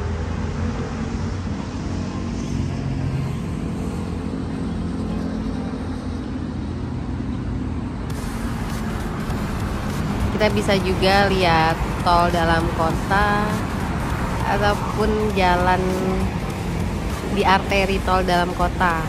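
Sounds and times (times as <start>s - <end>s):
road traffic drone: 0.0s - 19.0s.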